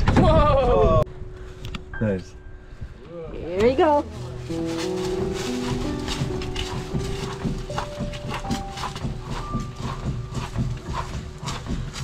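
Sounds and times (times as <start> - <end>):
background music: 0.6 - 12.0
footsteps on dry leaves: 4.0 - 12.0.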